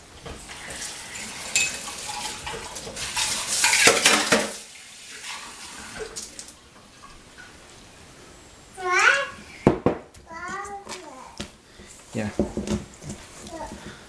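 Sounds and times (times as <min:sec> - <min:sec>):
bowl and utensils clattering: 0:00.6 - 0:04.7.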